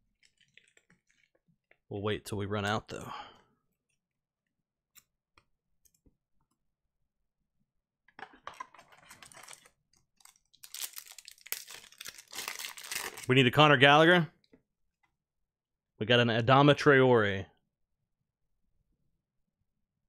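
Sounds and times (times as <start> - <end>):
foil wrapper crinkling: 0.2 - 1.4, 9.2 - 13.3.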